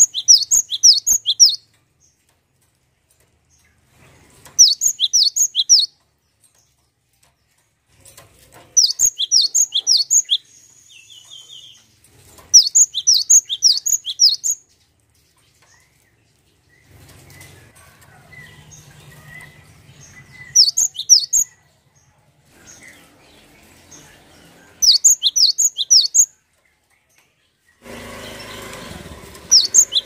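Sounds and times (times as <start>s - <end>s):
bird calling sharp high chirps: 0.0s - 1.6s, 4.6s - 5.9s, 8.8s - 11.8s, 12.6s - 14.6s, 20.4s - 21.5s, 24.8s - 26.3s, 29.5s - 30.0s.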